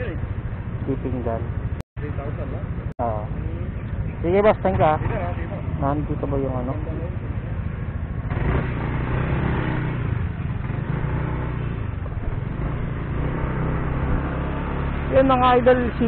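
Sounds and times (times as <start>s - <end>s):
motor scooter engine running: 7.0s - 16.0s.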